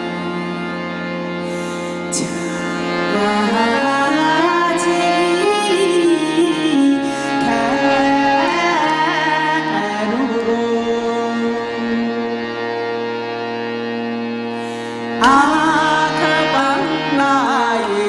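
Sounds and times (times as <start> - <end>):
woman singing slow melody: 2.1 - 11.8, 15.2 - 18.0.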